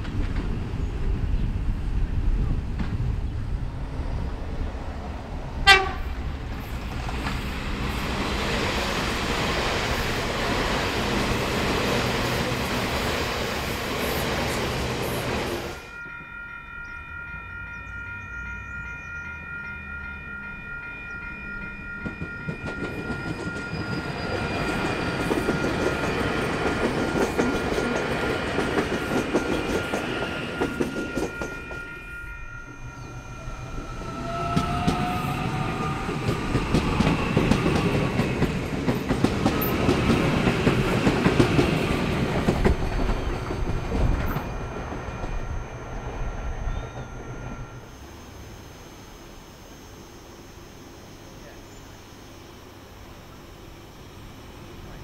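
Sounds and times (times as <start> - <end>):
train wheels clattering on rails: 0.0 - 3.4, 5.6 - 16.3, 21.0 - 47.8
approaching train: 0.0 - 55.0
train horn toot: 5.6 - 6.3, 30.4 - 36.1
level crossing warning bells: 14.2 - 55.0.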